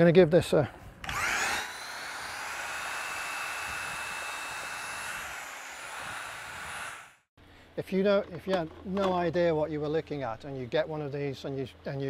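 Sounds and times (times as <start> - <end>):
drill motor whine mixing plaster: 1.0 - 7.3.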